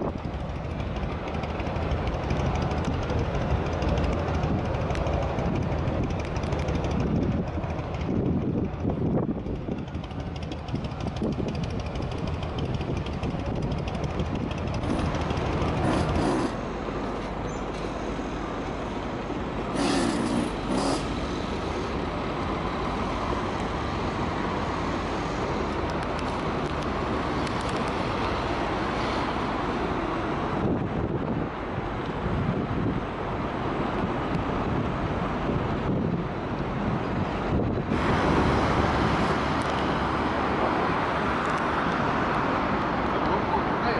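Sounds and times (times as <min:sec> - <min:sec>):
city traffic rumble: 0:00.0 - 0:43.9
short hisses: 0:19.7 - 0:21.4.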